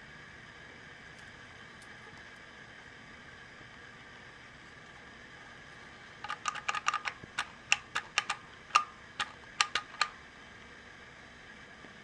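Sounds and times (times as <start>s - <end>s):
elevator button clicks: 6.3s - 10.2s.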